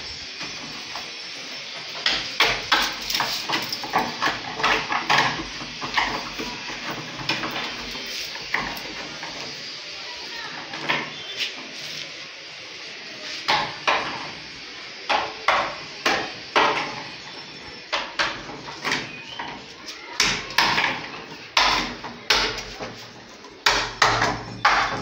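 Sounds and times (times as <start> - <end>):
hammer striking wood: 15.1 - 17.0, 20.2 - 22.9, 23.6 - 25.0.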